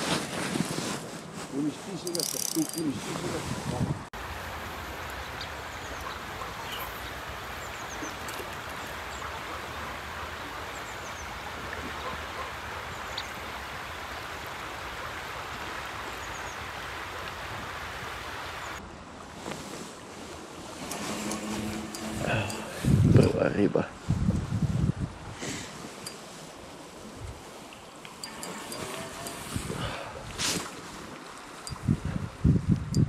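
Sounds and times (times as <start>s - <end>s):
fast-flowing river rushing: 28.1s - 31.4s.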